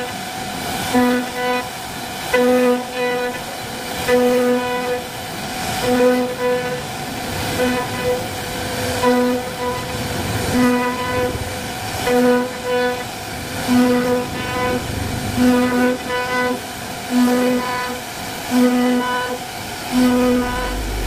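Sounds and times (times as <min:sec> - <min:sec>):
router spindle carving wood: 0:00.9 - 0:01.7, 0:02.3 - 0:13.1, 0:17.2 - 0:21.0.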